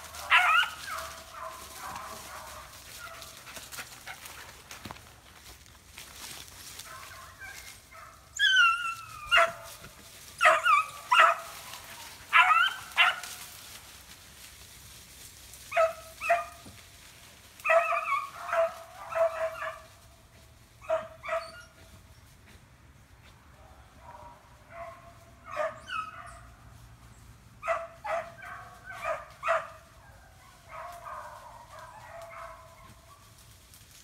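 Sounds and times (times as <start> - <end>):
dogs barking: 0.0 - 4.6, 6.8 - 13.5, 15.7 - 16.7, 17.6 - 20.0, 20.8 - 22.0, 23.5 - 26.6, 27.6 - 33.4.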